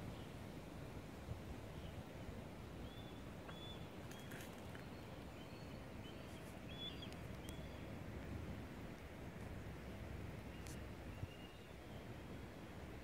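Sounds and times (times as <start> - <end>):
bird chirping: 2.9 - 7.9.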